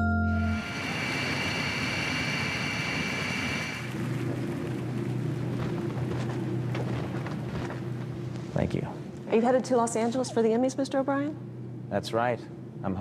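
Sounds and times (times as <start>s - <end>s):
jet engine rush with whine: 0.4s - 8.3s
aircraft cabin hum: 0.4s - 8.4s.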